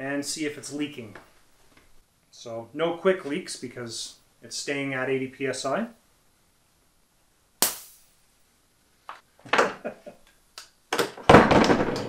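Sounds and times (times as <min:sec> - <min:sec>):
sharp pop: 0:07.6 - 0:08.2.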